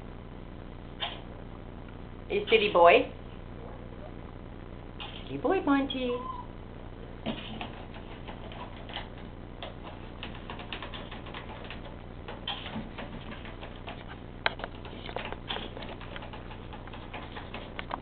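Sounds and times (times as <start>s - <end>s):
parrot clicking and tapping on perch: 7.3s - 18.0s.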